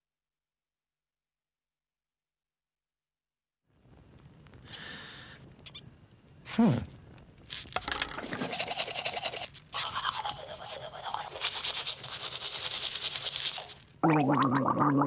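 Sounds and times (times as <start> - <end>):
toothbrush scrubbing teeth: 8.2 - 13.9.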